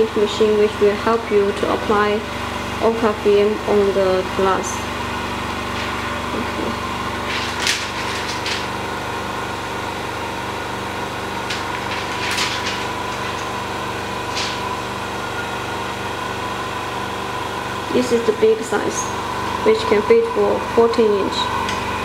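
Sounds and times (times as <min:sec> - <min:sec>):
machinery humming: 0:00.0 - 0:22.0
roller scraping over glass: 0:11.5 - 0:13.6.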